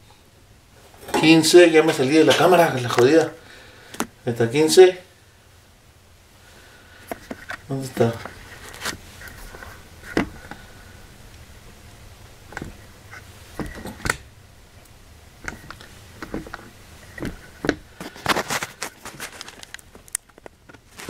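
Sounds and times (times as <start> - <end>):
handling knocks clicks and scrapes: 7.0 - 10.6, 12.5 - 14.3, 15.4 - 21.0.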